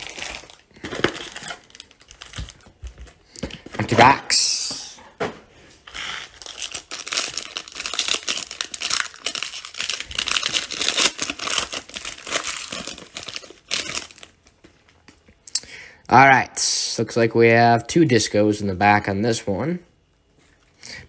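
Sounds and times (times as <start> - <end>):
foil wrapper crinkling and tearing: 0.0 - 2.7, 5.9 - 14.6.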